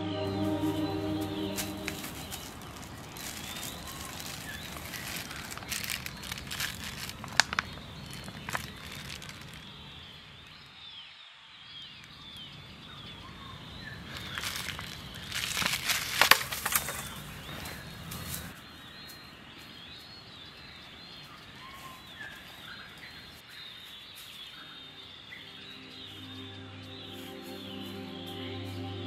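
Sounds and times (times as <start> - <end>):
faint high chirps: 0.0 - 6.2
crackling and rustling: 1.4 - 10.6, 14.0 - 20.0, 21.2 - 26.3.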